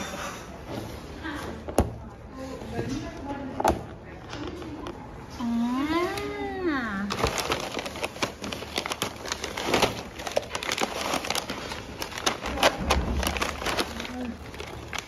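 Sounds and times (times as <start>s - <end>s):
plastic pouches crinkling: 6.0s - 15.0s.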